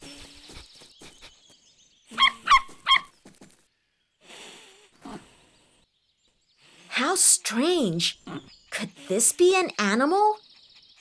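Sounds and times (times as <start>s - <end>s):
puppy high-pitched yaps: 2.2s - 3.1s
soft breathy snuffles: 4.2s - 5.6s.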